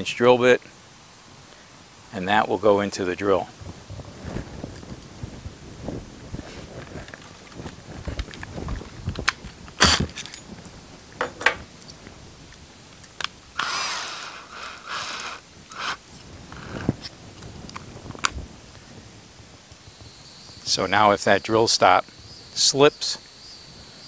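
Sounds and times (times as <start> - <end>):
tools clicking and knocking: 11.2 - 11.7.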